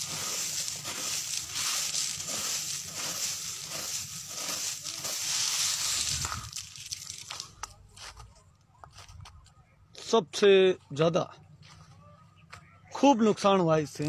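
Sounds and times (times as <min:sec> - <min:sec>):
hailstones crunching: 0:00.0 - 0:07.7.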